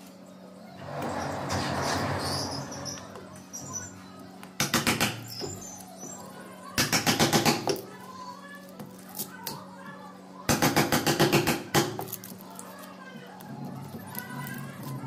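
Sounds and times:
scraping rustle: 0:00.7 - 0:04.1.

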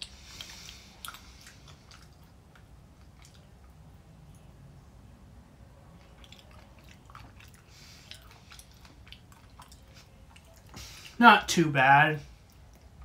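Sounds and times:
person chewing candy: 0:00.0 - 0:03.7, 0:06.0 - 0:11.2.

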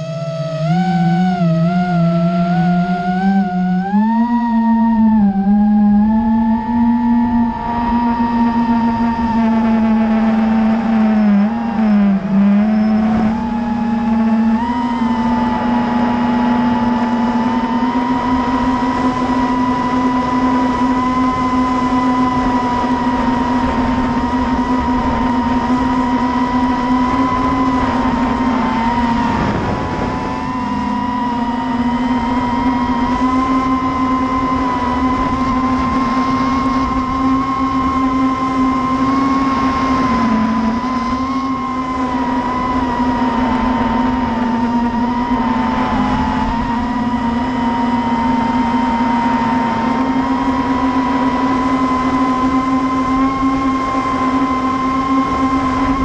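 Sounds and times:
drone propellers whining: 0:00.0 - 0:56.0
wind rush: 0:21.3 - 0:51.3.

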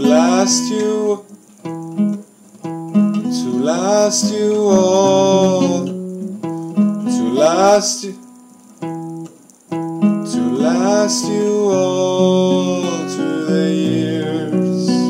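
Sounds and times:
man singing: 0:00.0 - 0:01.3, 0:03.2 - 0:06.0, 0:07.0 - 0:08.2, 0:10.2 - 0:15.0
acoustic guitar chords: 0:00.0 - 0:15.0.

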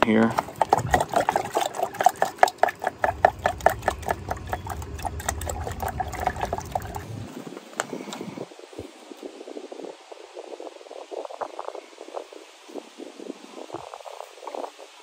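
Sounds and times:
connector splashing in water: 0:00.0 - 0:07.2.

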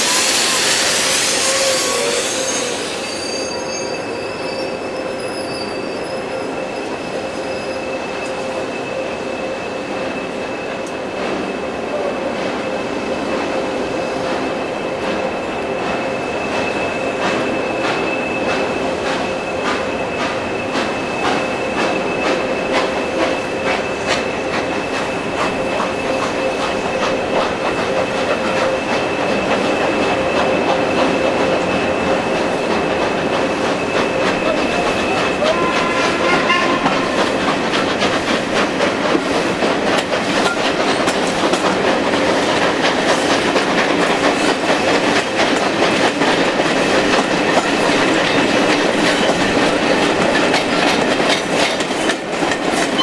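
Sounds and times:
high wheel squeal: 0:00.0 - 0:12.9, 0:16.0 - 0:38.8
train wheels clicking over rail joints: 0:09.9 - 0:53.0.

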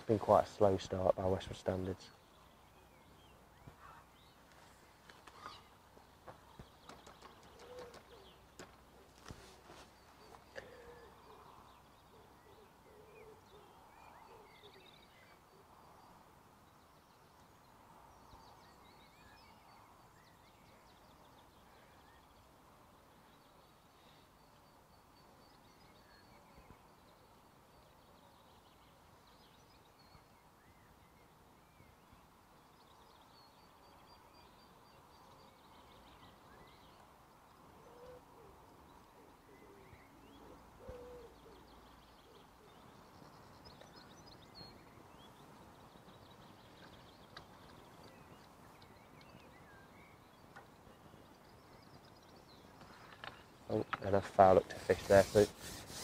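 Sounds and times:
birds chirping: 0:00.0 - 0:56.0
bird cooing: 0:07.0 - 0:08.4, 0:10.2 - 0:15.0, 0:37.8 - 0:43.0.

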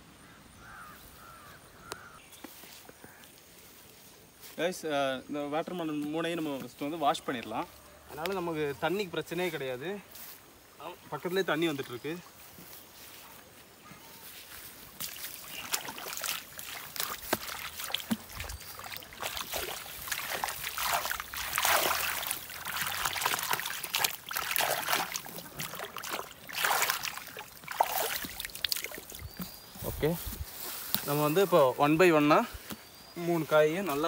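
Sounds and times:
hands splashing water: 0:15.0 - 0:29.6.

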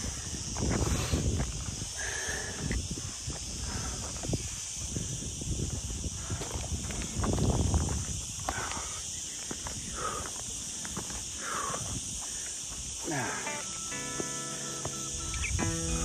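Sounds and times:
wind rumbling on microphone: 0:00.0 - 0:13.0
cicadas buzzing: 0:00.0 - 0:16.0
footsteps on trail: 0:00.4 - 0:05.0, 0:05.6 - 0:16.0
plucked guitar music: 0:13.4 - 0:16.0.

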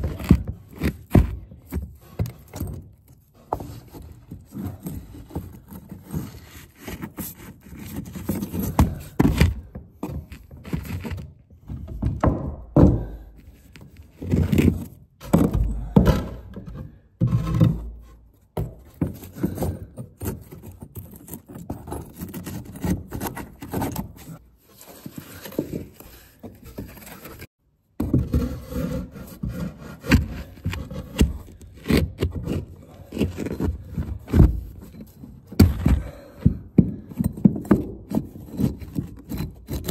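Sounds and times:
mortar scraping and rubbing: 0:00.0 - 0:11.9, 0:13.1 - 0:39.9
brick knocking against brick: 0:35.5 - 0:39.9.

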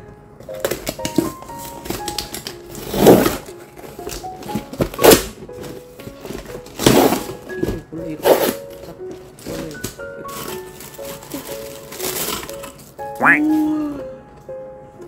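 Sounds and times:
background music: 0:00.0 - 0:15.0
packing tape ripping off box: 0:00.4 - 0:07.6, 0:08.2 - 0:13.0.

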